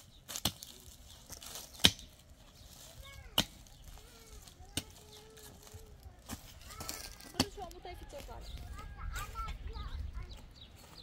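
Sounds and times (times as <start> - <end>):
pickaxe striking stony soil: 0.3 - 0.8, 1.4 - 2.2.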